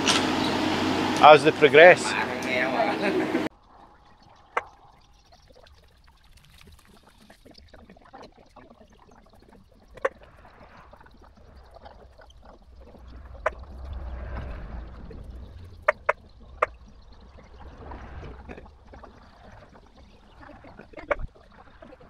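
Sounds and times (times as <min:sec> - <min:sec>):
excavator engine hum: 0:00.0 - 0:03.5.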